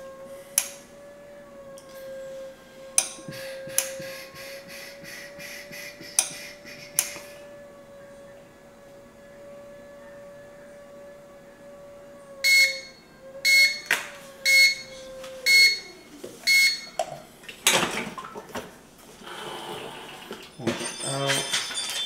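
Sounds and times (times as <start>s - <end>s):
hum sliding down in pitch: 0.0s - 16.4s
heat press timer beeping: 12.4s - 13.8s, 15.5s - 15.9s, 16.5s - 17.0s.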